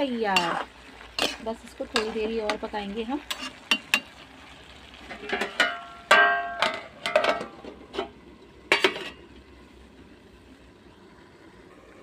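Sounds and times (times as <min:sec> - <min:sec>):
metal plate clinking on pot: 0:05.1 - 0:08.1, 0:08.7 - 0:09.2
ringing metal clang: 0:05.6 - 0:07.5.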